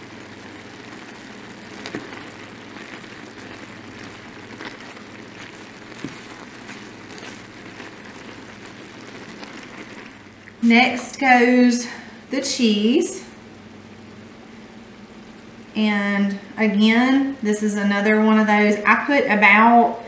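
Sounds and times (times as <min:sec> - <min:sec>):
sauce bubbling and sizzling: 0:00.0 - 0:12.2.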